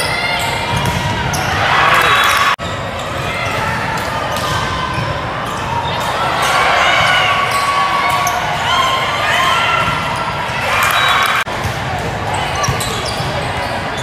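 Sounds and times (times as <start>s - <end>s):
voices echoing in hall: 0.0s - 14.0s
shoes squeaking on court: 12.5s - 14.0s.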